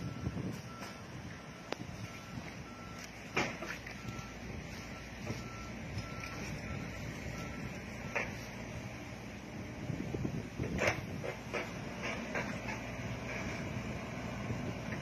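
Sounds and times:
warning alarm beeping: 0:00.0 - 0:08.5
diesel engine running: 0:00.0 - 0:15.0.

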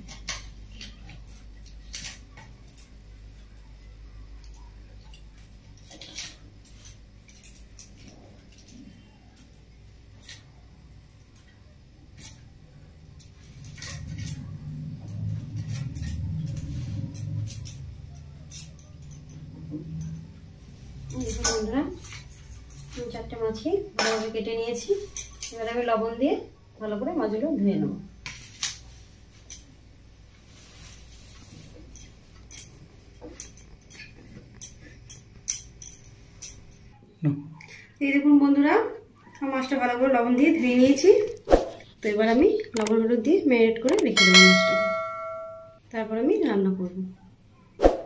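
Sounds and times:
low hum: 0:44.2 - 0:45.8.

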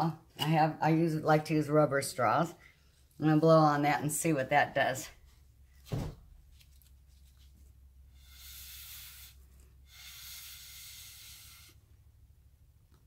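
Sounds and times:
breath blown through a straw: 0:08.1 - 0:11.9.

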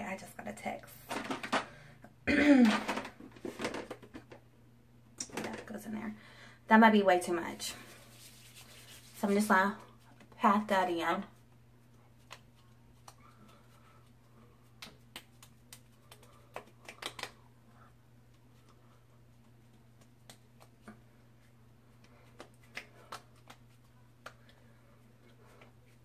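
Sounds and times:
fingertips tapping on skin: 0:14.6 - 0:17.4.

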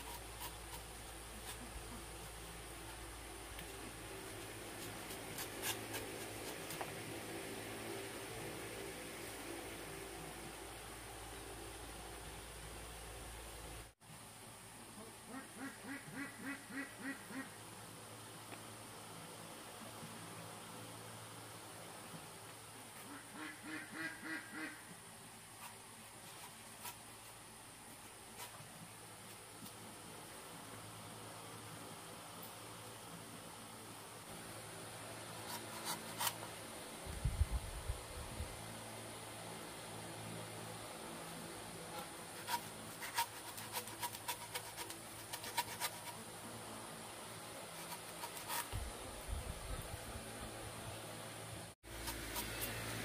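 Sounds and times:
duck quacking: 0:15.3 - 0:17.6, 0:23.1 - 0:24.8.

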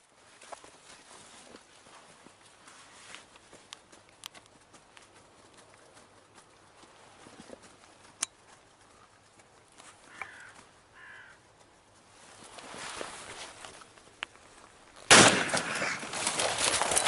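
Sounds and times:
rustling: 0:00.0 - 0:17.0
crow cawing: 0:10.0 - 0:11.5, 0:15.6 - 0:16.1.

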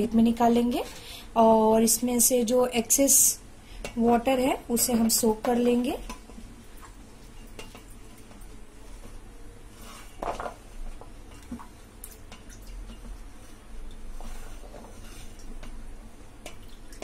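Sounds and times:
water sloshing and dripping: 0:11.0 - 0:17.0.

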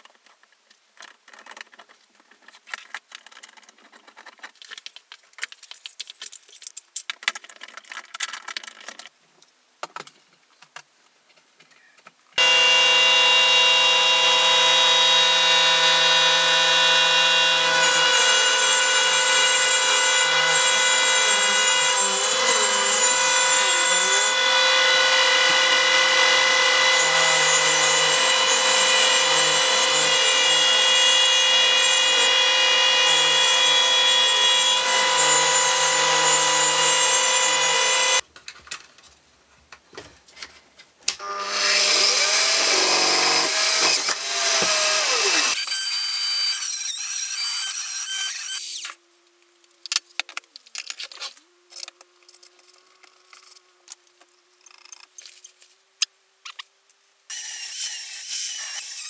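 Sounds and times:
drill press drilling: 0:12.4 - 0:38.2
rotary tool grinding metal: 0:12.4 - 0:38.2, 0:41.3 - 0:49.0, 0:57.3 - 0:59.0.

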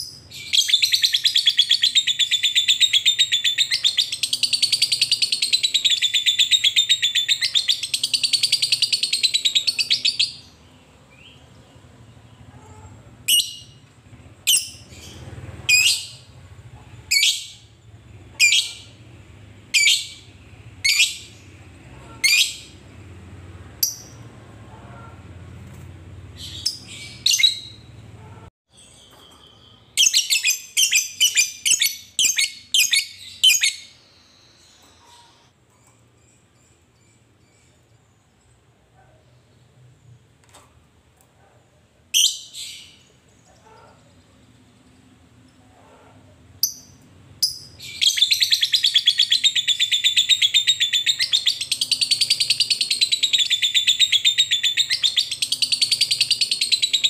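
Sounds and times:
bird sharp chirps: 0:00.0 - 0:12.4, 0:46.6 - 0:57.0.

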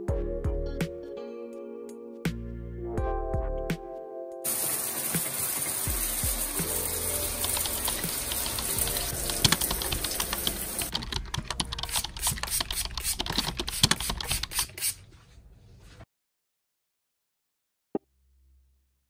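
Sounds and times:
liquid spraying on metal tray: 0:04.5 - 0:11.0.

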